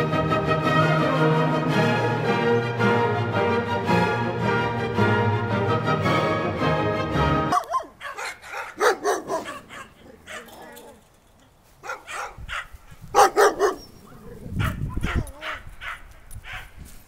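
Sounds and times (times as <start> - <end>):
background music: 0.0 - 7.7
dog barking: 7.5 - 10.6, 11.8 - 13.9, 14.6 - 16.7.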